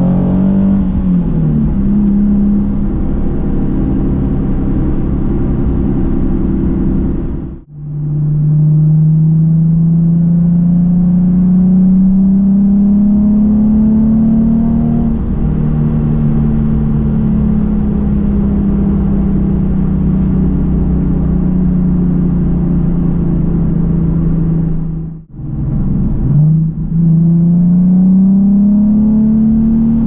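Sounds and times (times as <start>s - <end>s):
car exhaust drone: 0.0s - 30.0s.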